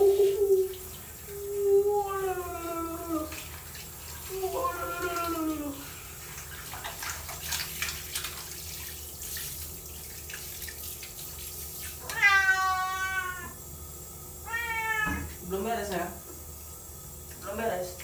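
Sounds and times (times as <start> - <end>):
hand shower water spraying: 0.0 - 13.5
cat meowing: 12.0 - 13.6, 14.4 - 15.3.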